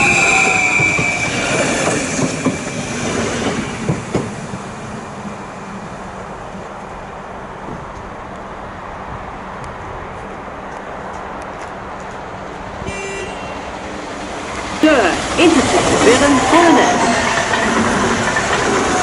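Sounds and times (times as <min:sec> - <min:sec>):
electric train passing: 0:00.0 - 0:19.0
high train whine: 0:00.0 - 0:19.0.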